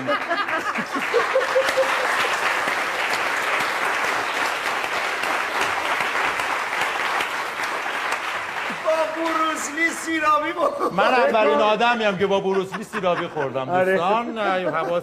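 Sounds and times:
audience applauding: 0.0s - 10.6s.

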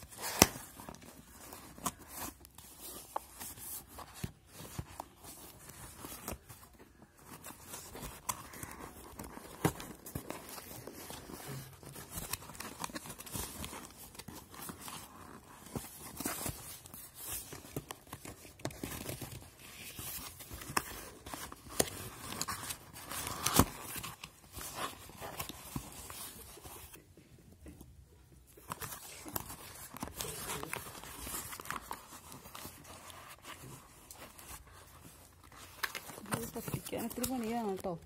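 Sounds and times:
cardboard tearing: 0.0s - 27.0s
cardboard snapping: 0.2s - 0.7s.

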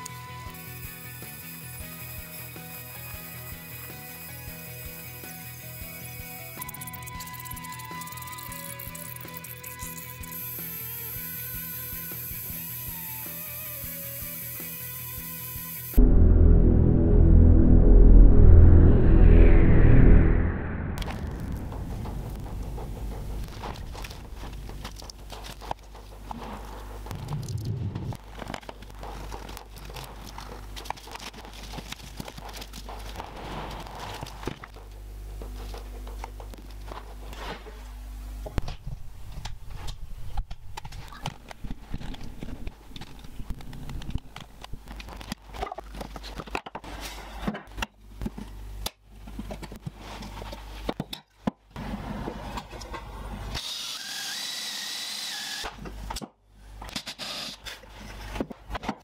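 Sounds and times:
cordless drill running: 53.6s - 55.7s.

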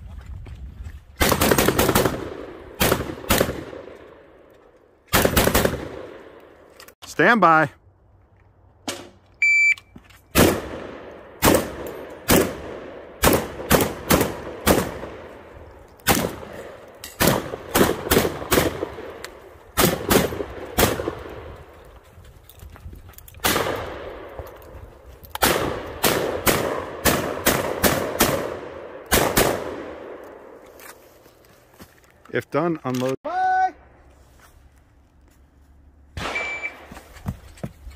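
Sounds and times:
shotgun firing rapidly: 5.2s - 6.0s, 25.4s - 29.7s
shot timer beep: 9.4s - 9.9s, 36.3s - 36.8s.

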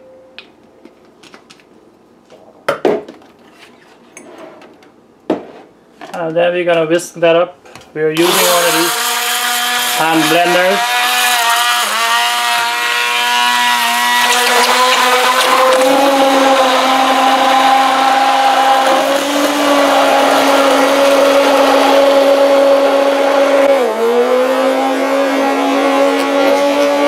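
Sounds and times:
stick blender motor whine: 8.2s - 27.0s.

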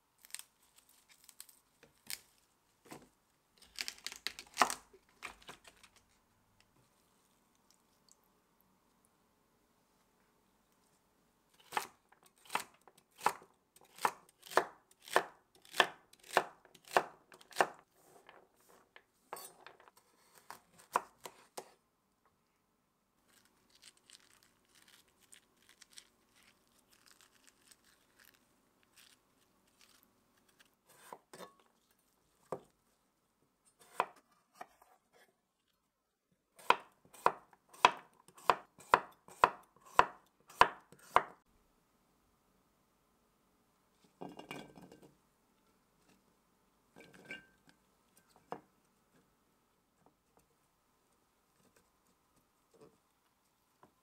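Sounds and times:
knife chopping on wooden board: 36.6s - 41.4s.

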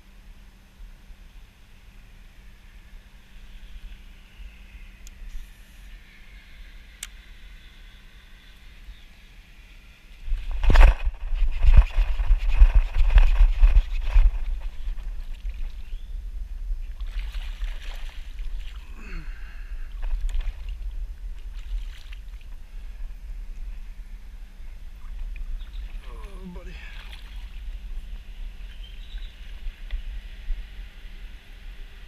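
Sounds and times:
steady low rumble: 0.0s - 32.0s
water sloshing and splashing: 16.8s - 19.0s, 19.9s - 22.8s, 25.0s - 28.9s.

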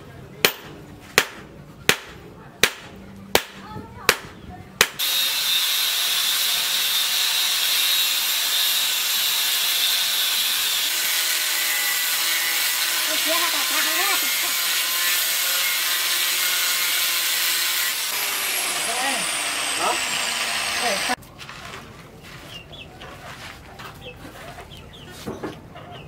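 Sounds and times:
hammer striking steel on anvil: 0.4s - 5.1s
angle grinder grinding steel: 5.0s - 21.2s.

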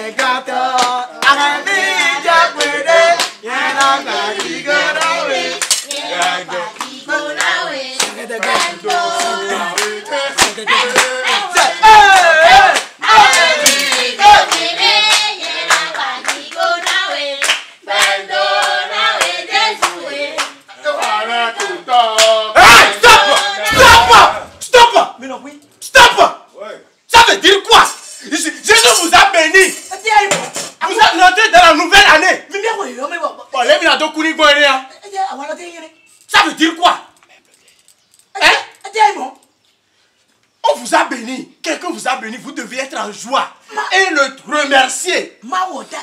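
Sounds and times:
group singing praise song: 0.0s - 24.8s
hand clapping: 0.2s - 1.4s, 2.0s - 22.4s.

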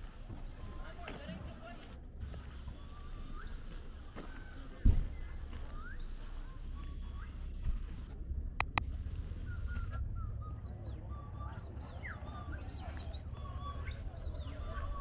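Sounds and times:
steady low rumble: 6.6s - 11.1s
sharp clicks: 8.6s - 8.9s
birds chirping: 9.4s - 15.0s.

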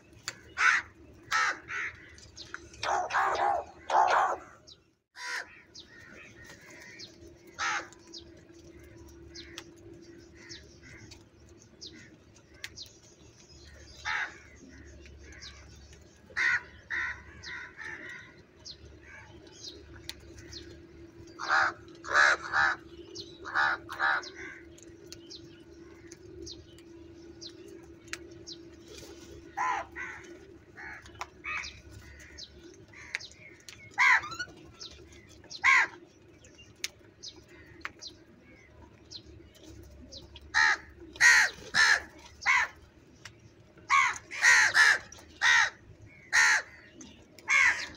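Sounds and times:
crows cawing: 0.4s - 4.6s, 5.2s - 8.1s, 14.0s - 15.6s, 16.4s - 18.4s, 21.4s - 24.8s, 29.5s - 34.5s, 35.5s - 36.0s, 40.5s - 42.8s, 43.9s - 46.9s, 47.5s - 47.9s.

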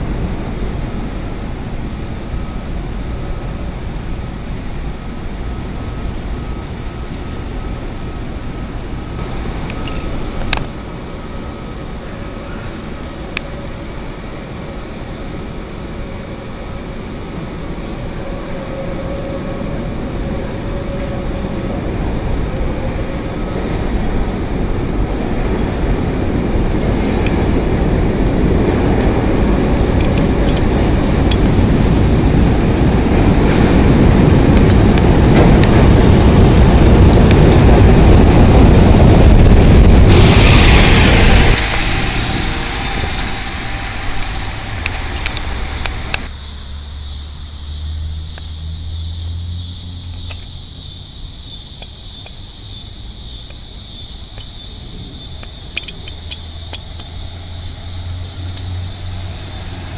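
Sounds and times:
bus engine hum: 0.0s - 59.9s
city bus: 0.0s - 59.9s
street traffic noise: 0.0s - 59.9s
train rolling into station: 0.0s - 59.9s
hiss: 39.5s - 47.9s, 49.2s - 59.9s.

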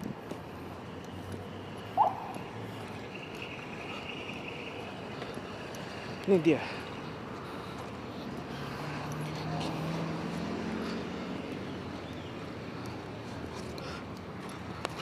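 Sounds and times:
car passing: 0.0s - 15.0s
street traffic: 0.0s - 15.0s.

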